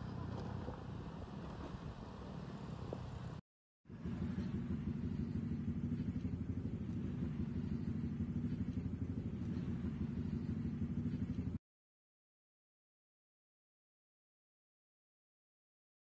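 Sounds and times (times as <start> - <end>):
small motorcycle engine running: 0.0 - 11.6.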